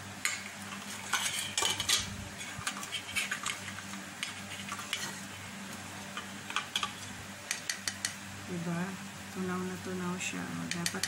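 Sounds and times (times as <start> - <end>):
faint steady hum: 0.0 - 11.0
fork scraping steel bowl: 0.9 - 5.2.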